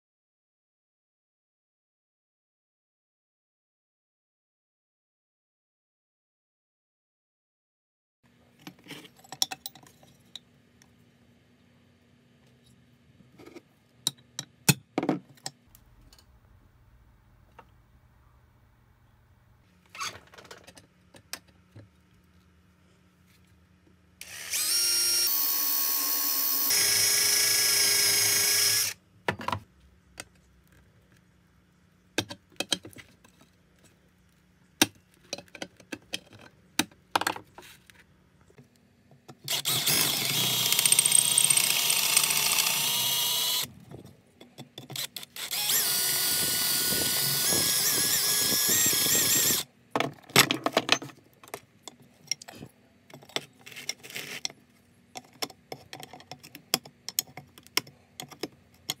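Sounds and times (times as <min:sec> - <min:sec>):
drill press drilling metal: 0:39.5 - 0:43.6, 0:45.4 - 0:49.6.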